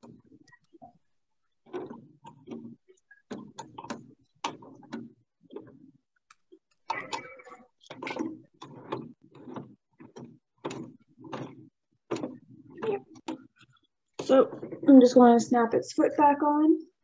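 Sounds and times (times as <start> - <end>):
clicks and knocks of machine parts: 1.6 - 14.9
rattle of machine parts: 6.8 - 14.9.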